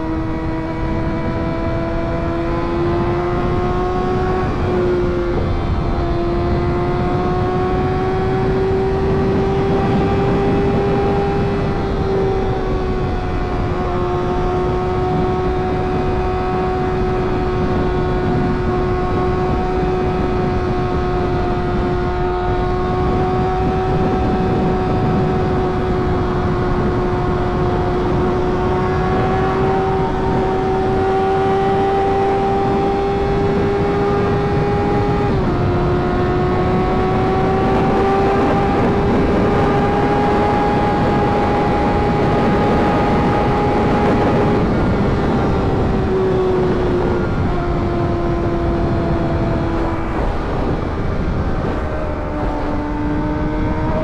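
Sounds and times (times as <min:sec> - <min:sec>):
motorcycle engine droning: 0:00.0 - 0:54.0
rushing wind noise: 0:00.0 - 0:54.0.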